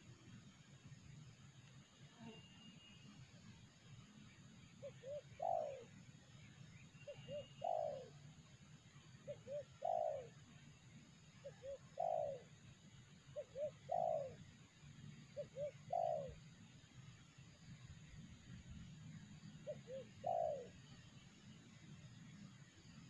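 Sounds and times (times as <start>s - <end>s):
dove cooing: 4.8s - 6.0s, 7.1s - 8.2s, 9.3s - 10.4s, 11.4s - 12.6s, 13.4s - 14.4s, 15.4s - 16.4s, 19.6s - 20.8s.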